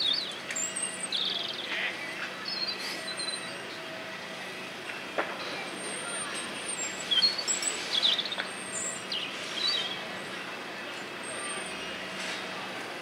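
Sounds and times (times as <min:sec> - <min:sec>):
small birds chirping: 0:06.7 - 0:10.0.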